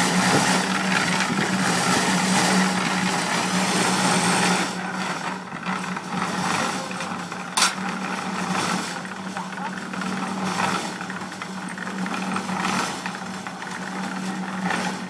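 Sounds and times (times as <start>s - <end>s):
concrete churning in rotating drum: 0.0s - 15.0s
mixer motor hum: 0.0s - 15.0s
sharp metal clank: 7.6s - 7.8s.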